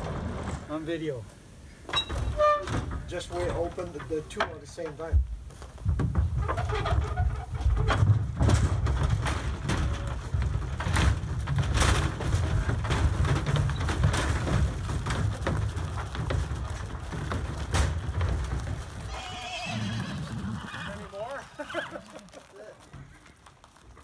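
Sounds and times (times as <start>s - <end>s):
hooves thumping on trailer floor: 1.8s - 24.0s
horse whinnying: 19.0s - 22.2s.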